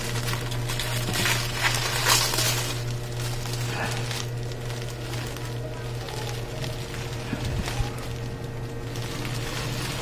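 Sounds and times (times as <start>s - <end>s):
bubble wrap crinkling: 0.0s - 10.0s
steady low hum: 0.0s - 10.0s.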